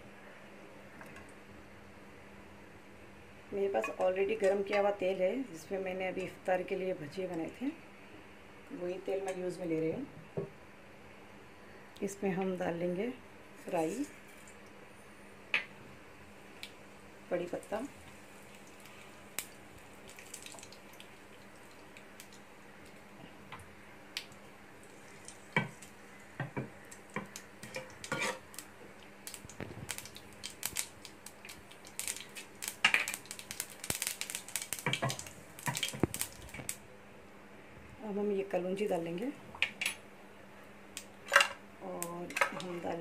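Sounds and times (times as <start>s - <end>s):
oil sizzling: 15.6s - 36.8s.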